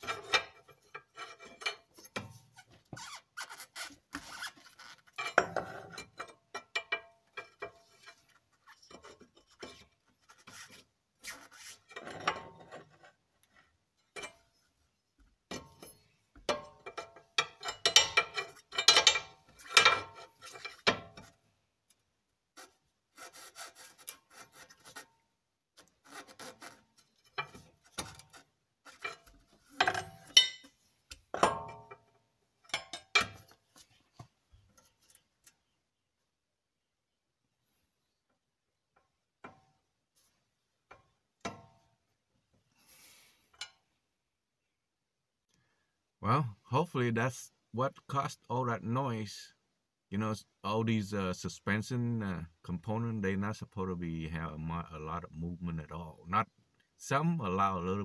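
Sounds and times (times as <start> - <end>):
pry bar scraping and clicking metal: 0.0 - 2.4, 3.0 - 14.4, 15.5 - 21.3, 22.6 - 25.1, 25.8 - 32.0.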